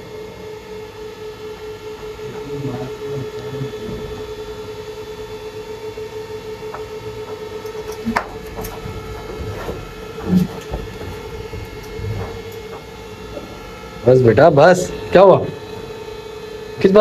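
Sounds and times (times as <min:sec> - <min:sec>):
electrical hum: 0:00.0 - 0:17.0
knocks and dull thuds: 0:08.0 - 0:13.6.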